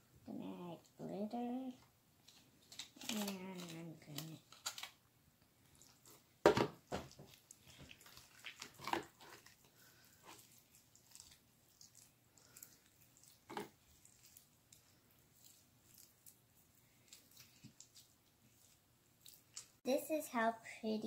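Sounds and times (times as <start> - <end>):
slime squelching: 5.6 - 20.2.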